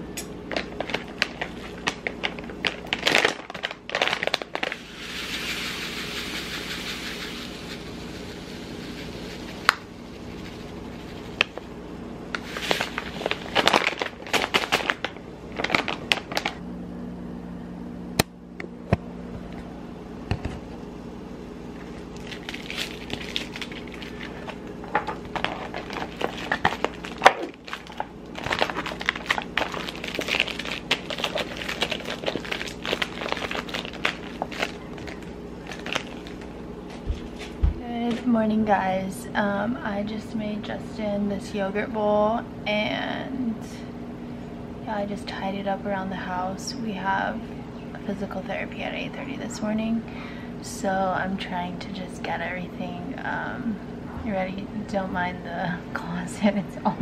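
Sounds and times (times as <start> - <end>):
faint hum: 0.0 - 57.0
plastic pouch crinkling: 0.5 - 11.6, 12.4 - 16.6, 22.2 - 37.6
seeds pouring: 1.0 - 11.6, 12.4 - 15.0, 22.2 - 36.5.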